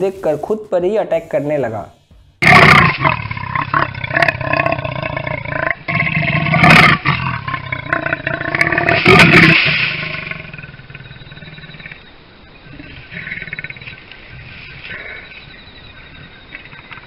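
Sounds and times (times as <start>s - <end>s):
leopard snarling and growling: 2.4s - 15.5s
leopard roaring: 2.4s - 16.1s.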